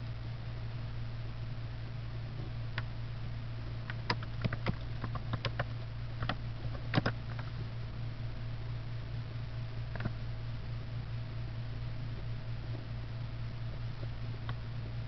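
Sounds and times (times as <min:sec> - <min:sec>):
low electrical hum: 0:00.0 - 0:15.0
computer keyboard keystrokes: 0:03.9 - 0:07.5.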